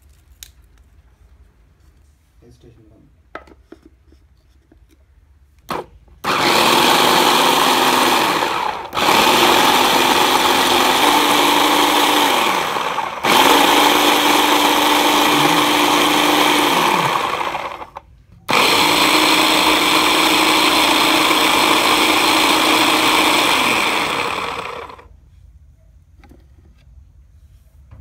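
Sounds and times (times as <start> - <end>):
blender motor running: 6.2 - 25.1.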